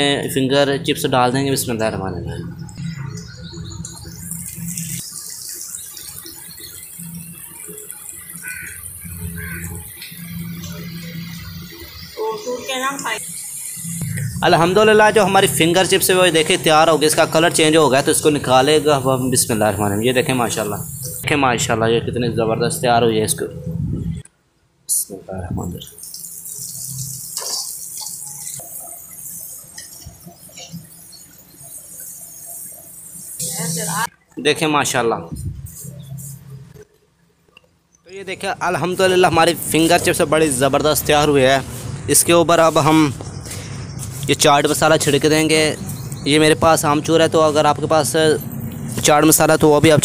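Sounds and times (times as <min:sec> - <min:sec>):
chips sizzling in hot oil: 0:03.6 - 0:14.4, 0:25.9 - 0:34.1.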